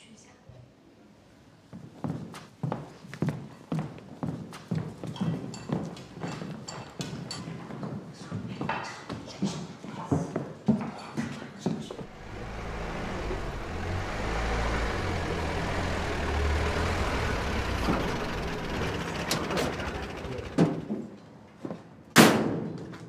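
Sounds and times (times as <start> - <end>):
truck engine rumbling: 12.0 - 21.0.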